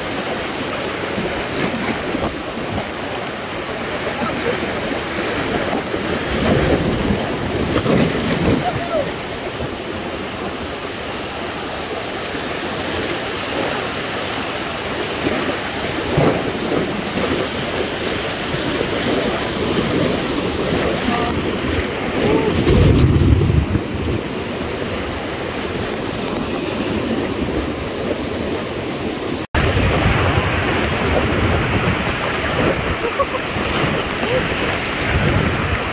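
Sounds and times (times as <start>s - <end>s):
river rapids rushing: 0.0s - 35.9s
low rumble: 19.8s - 24.4s.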